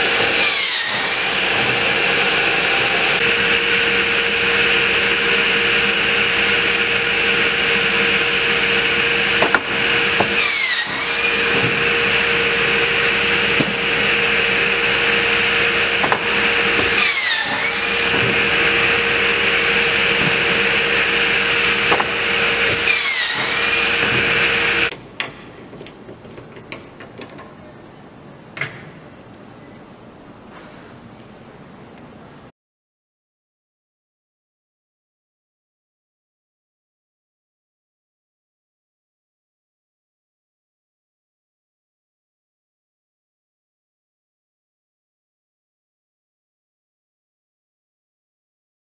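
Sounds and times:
cut-off saw humming: 0.0 - 24.9
saw blade cutting boards: 0.0 - 24.9.

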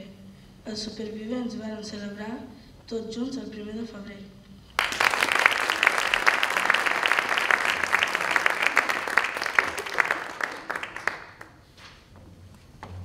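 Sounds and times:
audience applauding: 4.8 - 11.6.

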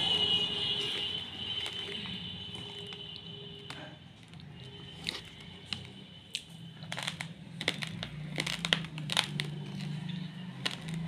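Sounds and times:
plastic packet crinkling: 6.8 - 11.0.

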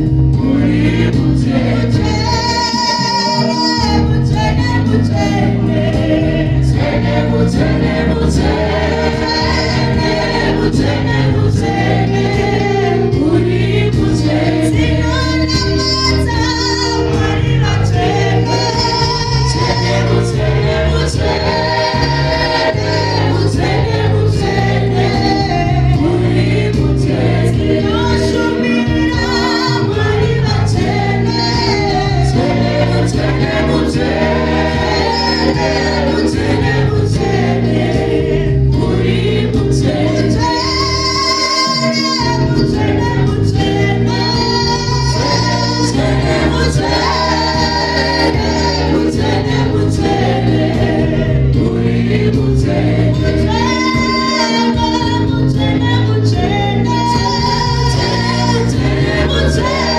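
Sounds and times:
backing vocalists singing: 0.0 - 59.9
instrumental backing: 0.0 - 59.9
woman singing lead: 0.4 - 34.2, 34.8 - 37.8, 38.8 - 52.3, 53.1 - 59.9.

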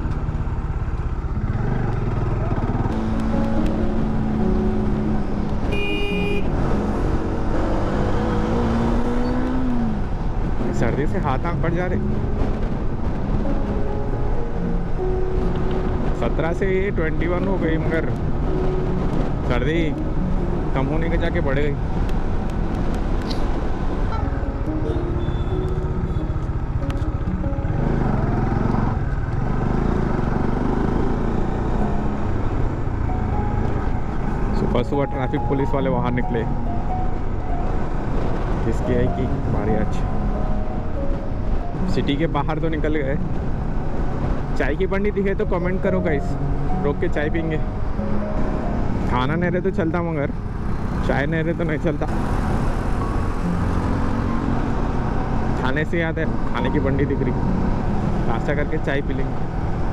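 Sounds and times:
motorcycle engine running: 0.0 - 7.6
vehicle horn honk: 5.7 - 6.6, 24.2 - 26.4.

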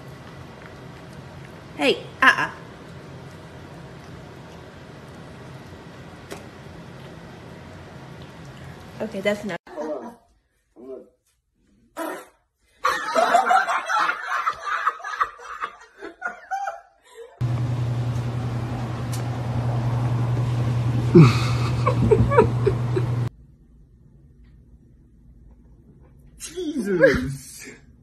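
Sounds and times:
steady low hum: 17.4 - 26.5
person laughing: 21.1 - 23.2.

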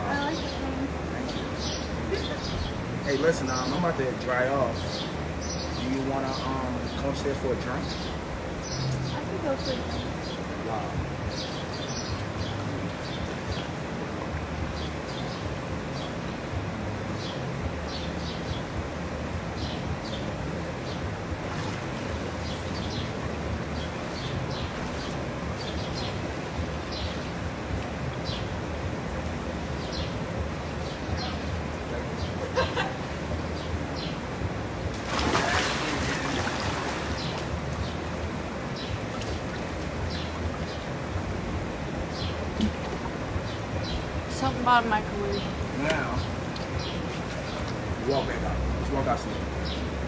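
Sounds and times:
hot tub jets bubbling: 0.0 - 50.0
person splashing into hot tub: 21.3 - 22.7, 34.9 - 37.7.

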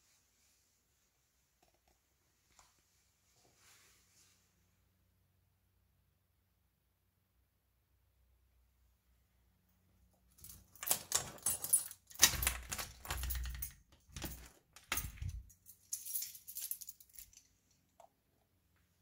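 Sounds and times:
light metallic jingle: 10.3 - 17.9
door handle and latch rattling: 10.4 - 15.6.

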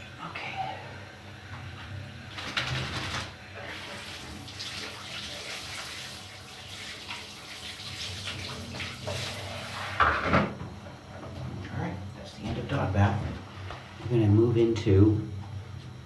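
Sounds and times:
shower water spraying: 2.3 - 10.0.

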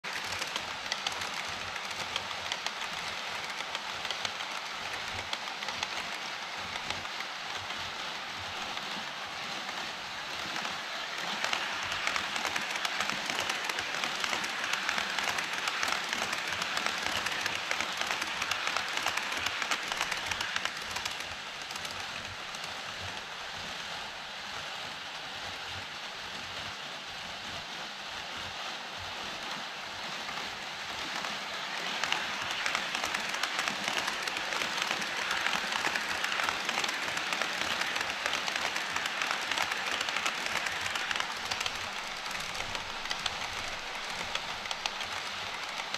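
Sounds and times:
model train wheels clattering: 0.0 - 23.8, 30.0 - 45.9.

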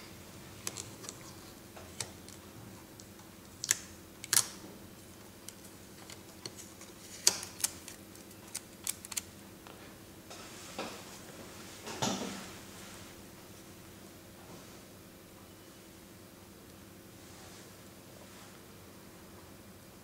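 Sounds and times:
tape clicking and crackling: 0.6 - 9.4.

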